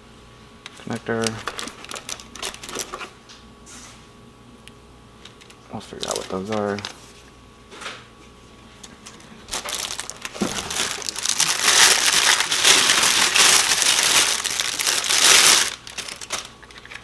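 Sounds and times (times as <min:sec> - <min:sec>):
packaging crinkling: 0:00.8 - 0:03.1, 0:05.2 - 0:07.1, 0:08.8 - 0:17.0.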